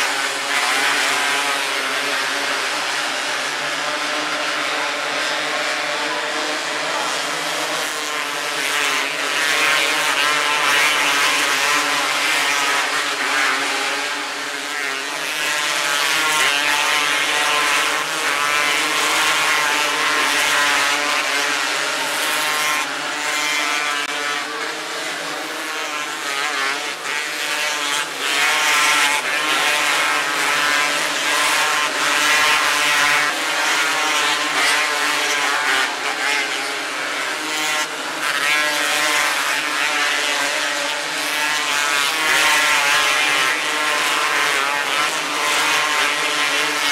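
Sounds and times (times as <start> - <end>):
racing car engines at high revs: 0.0 - 46.9.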